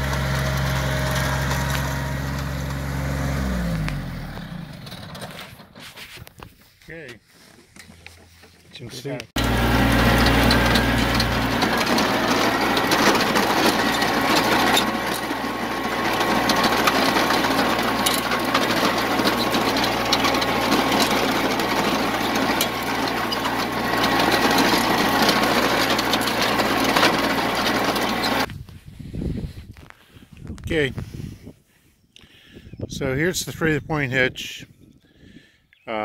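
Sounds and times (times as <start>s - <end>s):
diesel tractor running: 0.0s - 5.8s, 9.4s - 28.5s
aerator tines clattering: 7.8s - 28.5s.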